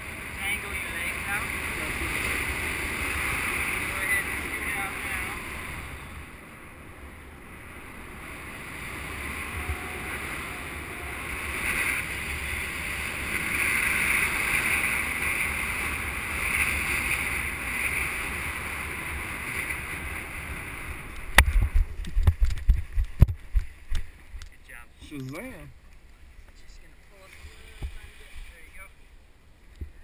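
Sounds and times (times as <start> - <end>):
wind rushing over microphone: 0.0 - 24.5.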